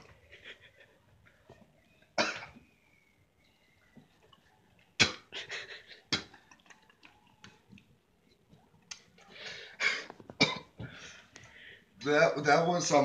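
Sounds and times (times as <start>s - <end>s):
person coughing: 2.2s - 2.6s, 9.8s - 10.7s.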